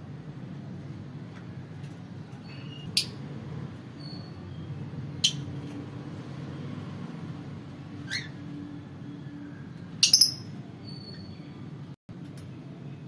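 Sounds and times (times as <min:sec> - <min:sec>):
lovebirds chirping: 0:09.0 - 0:11.6
faint bird peeps: 0:09.1 - 0:11.6.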